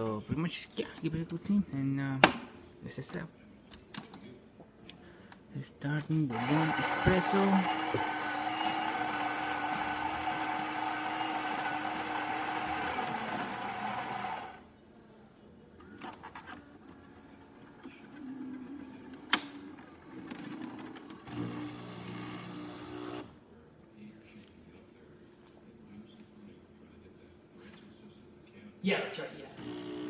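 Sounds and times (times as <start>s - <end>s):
espresso machine mechanical sounds: 6.2s - 14.6s, 17.6s - 23.3s, 29.6s - 30.0s
coffee grinder running: 6.3s - 14.6s, 21.2s - 23.3s, 29.6s - 30.0s.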